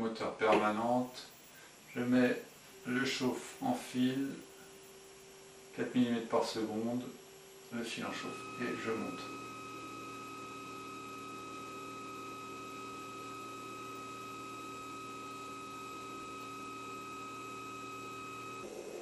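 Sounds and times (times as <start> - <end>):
stepper motors whining: 8.0 - 19.0.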